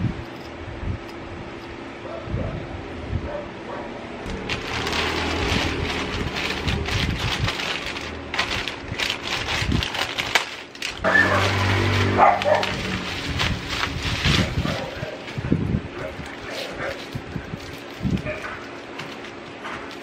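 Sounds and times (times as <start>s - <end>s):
plastic and bubble wrap crinkling: 4.3s - 20.0s
plastic mailer tearing: 4.3s - 20.0s
pitched tone: 11.0s - 12.2s.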